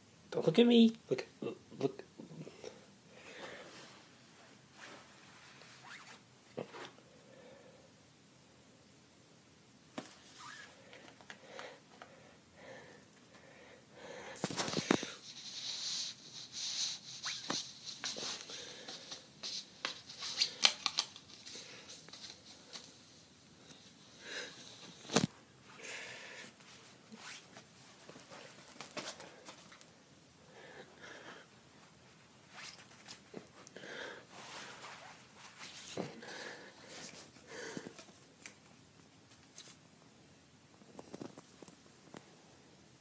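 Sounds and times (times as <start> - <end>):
fabric rustles and scratches: 4.7 - 7.0, 14.4 - 23.1, 26.7 - 29.6, 32.4 - 33.4, 34.3 - 36.0.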